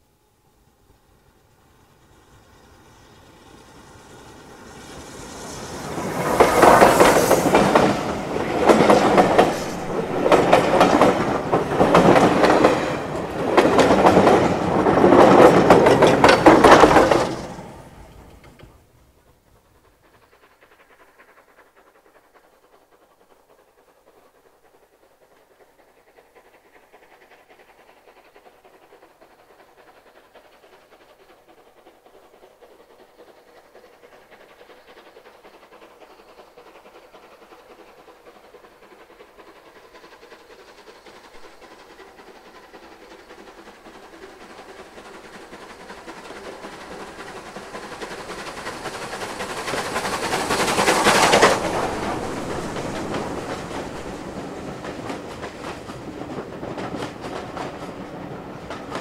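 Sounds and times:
steam locomotive passing: 0:00.0 - 0:59.0.

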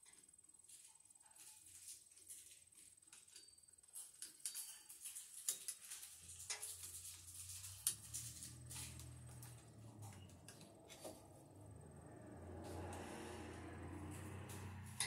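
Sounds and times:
low hum: 0:07.6 - 0:15.0.

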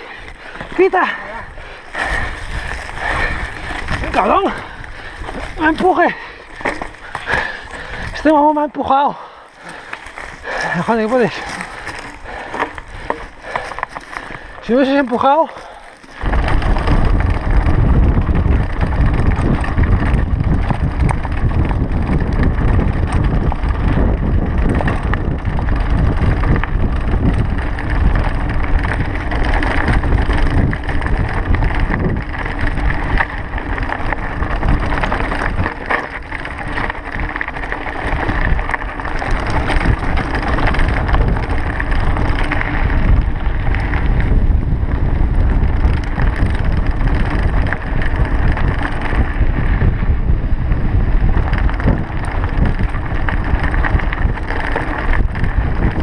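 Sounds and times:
tyres crunching over stones: 0:00.0 - 0:08.6, 0:09.4 - 0:17.4
bike rattling: 0:00.0 - 0:56.0
wind buffeting microphone: 0:00.0 - 0:56.0.

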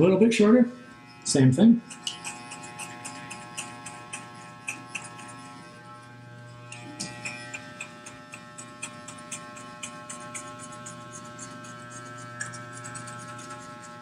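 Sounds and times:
electric hair clippers buzzing: 0:00.8 - 0:14.0
clipper blade clicking through hair: 0:01.9 - 0:05.6, 0:06.6 - 0:14.0.

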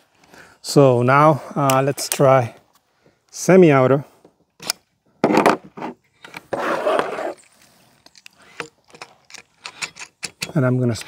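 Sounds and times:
air rifle handling clicks: 0:01.6 - 0:02.3, 0:04.6 - 0:04.9, 0:07.5 - 0:11.0.

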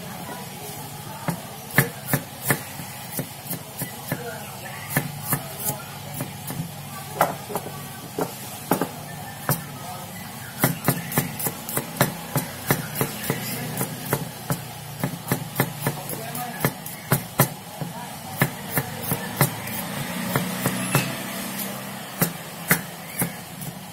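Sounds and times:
knife chopping on wooden board: 0:10.6 - 0:17.6, 0:18.4 - 0:23.8.

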